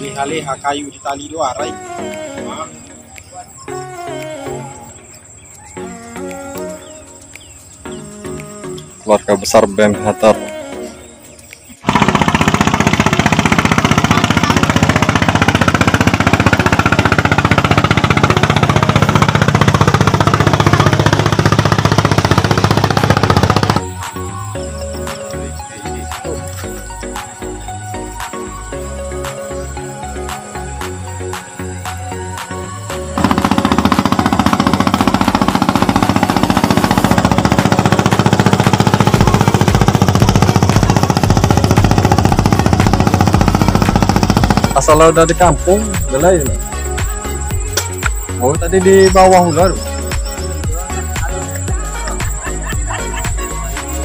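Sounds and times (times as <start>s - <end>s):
motorboat engine puttering: 11.7s - 54.0s.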